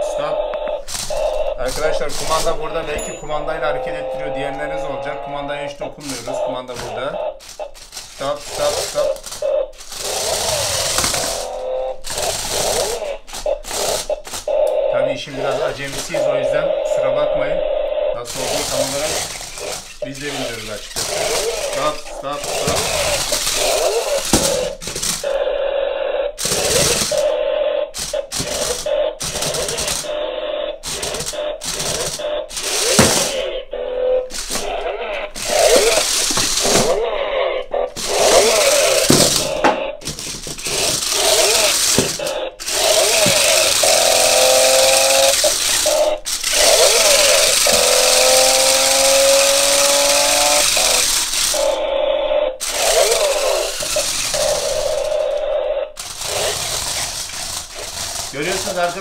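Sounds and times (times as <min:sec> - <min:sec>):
toy car electric motors whining: 0:00.0 - 0:59.0
wheels rattling over hard floor: 0:00.8 - 0:14.6, 0:18.3 - 0:25.4, 0:26.4 - 0:27.3, 0:28.0 - 0:30.2, 0:30.8 - 0:33.5, 0:34.3 - 0:37.2, 0:37.9 - 0:51.8, 0:52.6 - 0:59.0.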